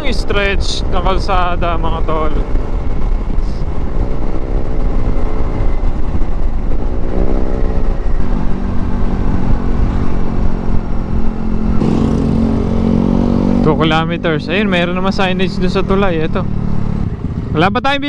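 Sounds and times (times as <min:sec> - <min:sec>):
low rumble: 0:00.0 - 0:18.0
scooter engine running: 0:16.1 - 0:17.7.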